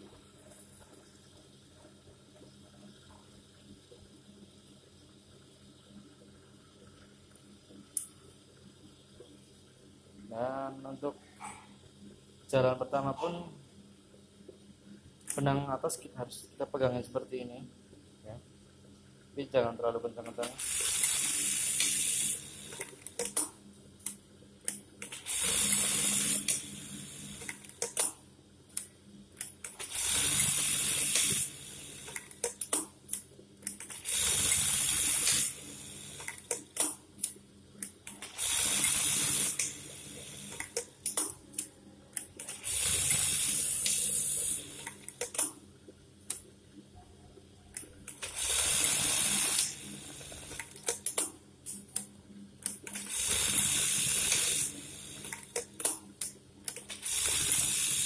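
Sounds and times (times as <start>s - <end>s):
sharp mechanical clicks: 20.2s - 26.8s, 27.4s - 35.6s, 36.2s - 39.8s, 40.4s - 45.6s, 47.8s - 58.0s
sewing machine stitching: 42.4s - 45.4s, 56.8s - 58.0s.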